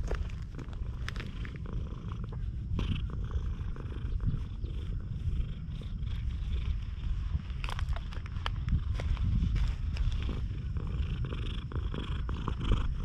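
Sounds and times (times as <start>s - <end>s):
cat purring: 0.0s - 13.0s
hand rustling on fur: 6.2s - 10.8s.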